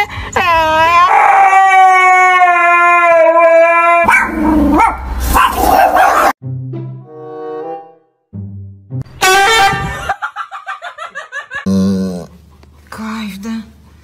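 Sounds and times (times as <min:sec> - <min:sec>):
husky howling: 0:00.9 - 0:06.3
rough dog noise: 0:04.1 - 0:06.4.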